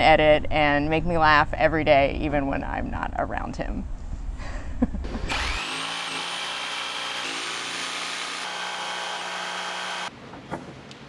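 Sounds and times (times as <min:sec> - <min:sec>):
jigsaw cutting wood: 0:05.1 - 0:10.1.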